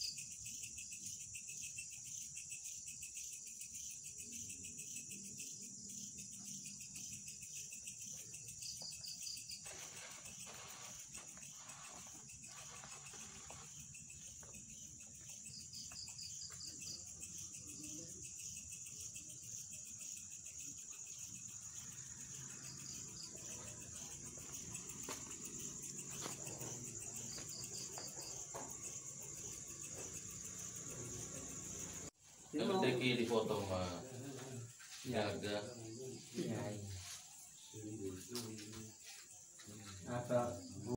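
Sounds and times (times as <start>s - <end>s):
crickets trilling: 0.0s - 40.9s
insect pulsed chirps: 0.0s - 40.9s.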